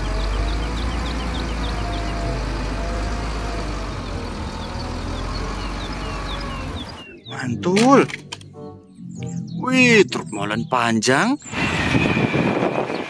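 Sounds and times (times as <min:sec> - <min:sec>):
diesel engine rumbling: 0:00.0 - 0:08.4.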